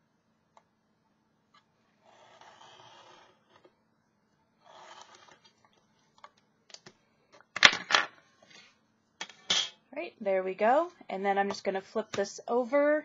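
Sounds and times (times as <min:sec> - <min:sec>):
blade scraping through cork: 0:02.0 - 0:03.6, 0:04.6 - 0:05.4
knife scratching cork: 0:02.1 - 0:03.6.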